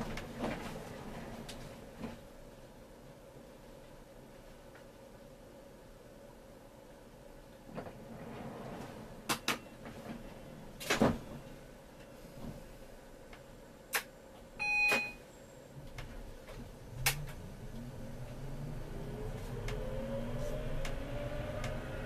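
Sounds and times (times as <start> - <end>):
short electronic beep: 14.6 - 15.2
tram motor hum: 15.8 - 22.0.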